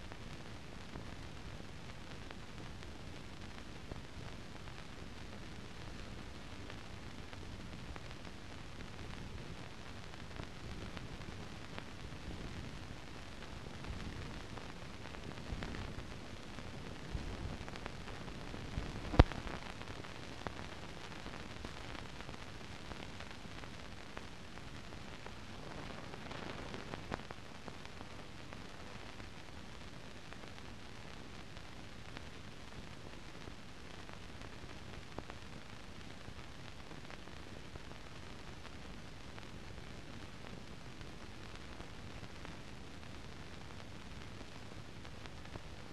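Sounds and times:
film soundtrack hiss: 0:00.0 - 0:45.9
faint pops: 0:17.1 - 0:22.4.

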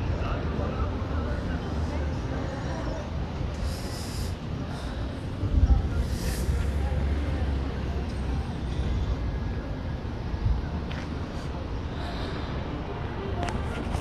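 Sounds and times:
traffic passing: 0:00.0 - 0:14.0.

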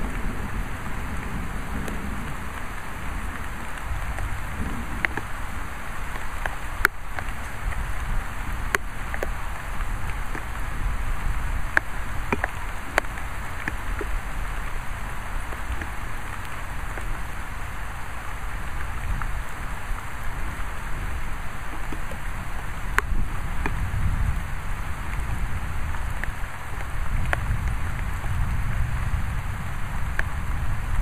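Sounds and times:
rain falling: 0:00.0 - 0:31.0
raindrops tapping close by: 0:00.0 - 0:31.0.

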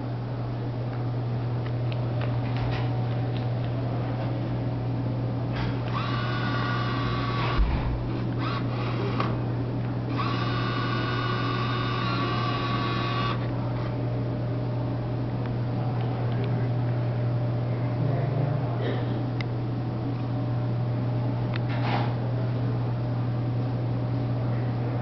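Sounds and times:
machine low hum: 0:00.0 - 0:25.0
bill acceptor motor whining: 0:05.8 - 0:09.4, 0:10.1 - 0:13.5.

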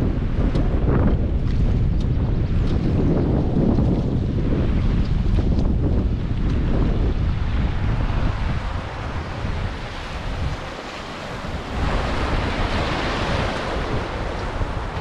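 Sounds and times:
wind buffeting microphone: 0:00.0 - 0:15.0
river water rushing: 0:07.6 - 0:15.0.

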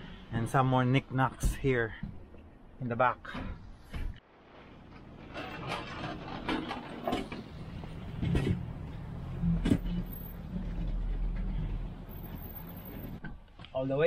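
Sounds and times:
hand truck wheels rumbling: 0:04.6 - 0:13.4
knocks and clanks: 0:04.8 - 0:13.5.

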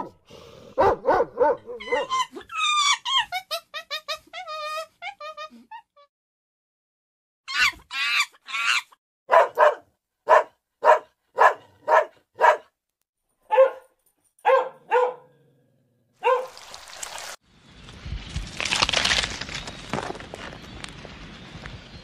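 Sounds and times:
dog barking: 0:00.0 - 0:02.2, 0:09.3 - 0:12.8, 0:13.4 - 0:15.5, 0:16.2 - 0:16.6.

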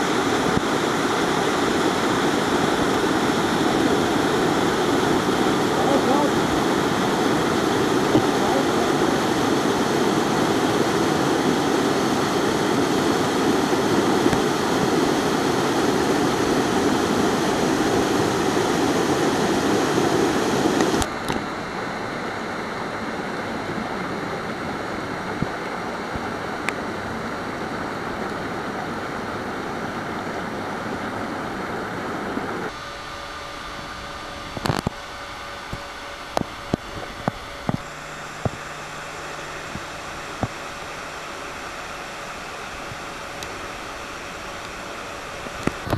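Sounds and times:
waterfall roaring: 0:00.0 - 0:21.4, 0:22.7 - 0:35.0.

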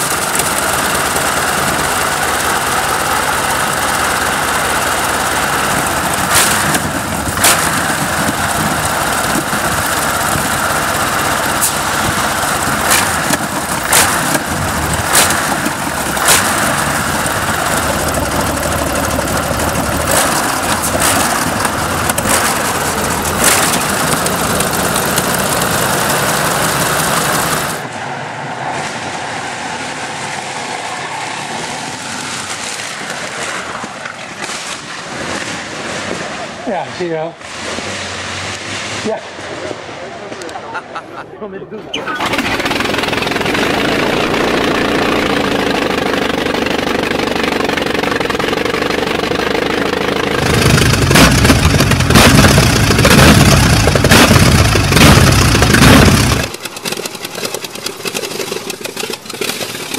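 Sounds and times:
sharp engine cracks: 0:00.0 - 0:27.8, 0:42.0 - 0:59.9
aero engine rumbling: 0:00.0 - 0:59.9
distant car engine: 0:00.0 - 0:59.9.

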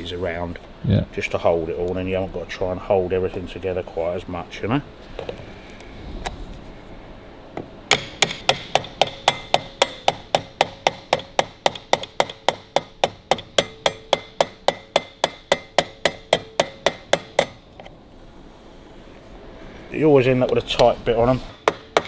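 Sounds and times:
hammer tapping steel punch: 0:07.6 - 0:17.6, 0:21.5 - 0:22.0.

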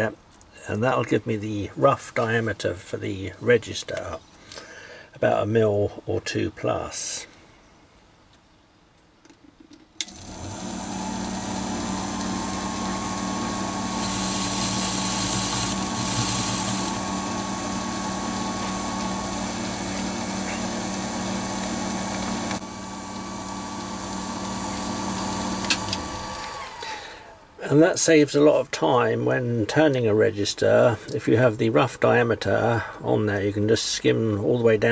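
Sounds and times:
lathe spindle whining: 0:10.0 - 0:27.4
cutting tool hiss on metal: 0:14.0 - 0:17.0.

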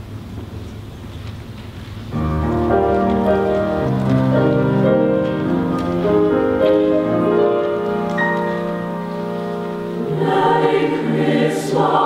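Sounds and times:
hall noise: 0:02.1 - 0:12.0
choir singing held chords: 0:04.4 - 0:12.0.

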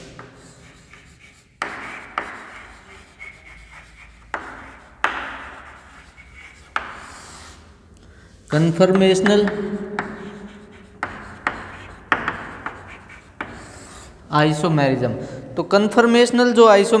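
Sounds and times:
chalk scratching on a blackboard: 0:00.0 - 0:07.8, 0:08.5 - 0:14.3.

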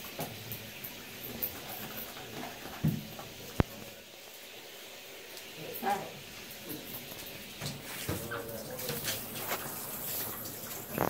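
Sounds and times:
hand rubbing wet dog: 0:07.7 - 0:11.0.

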